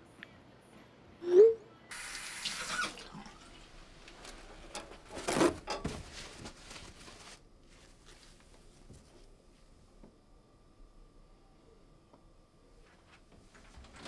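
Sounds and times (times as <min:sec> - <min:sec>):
water running at sink: 0:01.9 - 0:04.1
plastic bin liner rustling: 0:04.0 - 0:09.2.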